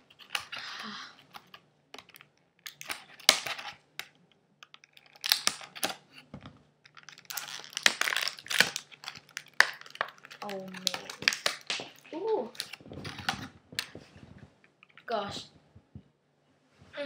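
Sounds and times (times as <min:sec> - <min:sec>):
scissors cutting plastic packaging: 0:00.1 - 0:06.1, 0:06.9 - 0:13.5.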